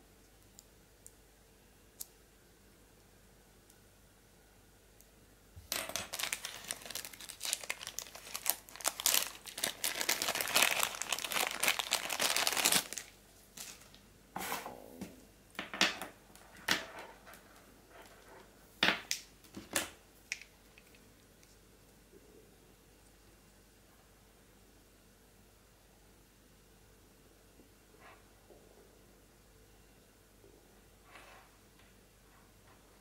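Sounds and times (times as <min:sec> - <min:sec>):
plastic bag crinkling: 0:05.7 - 0:14.0.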